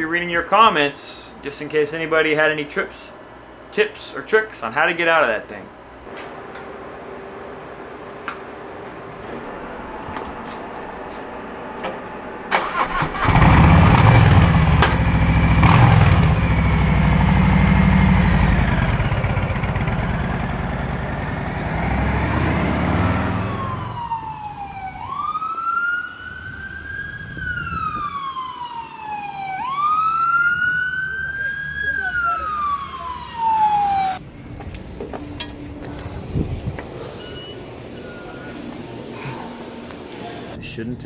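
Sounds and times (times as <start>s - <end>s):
motorcycle engine running: 13.4s - 23.4s
siren wailing: 23.0s - 34.2s.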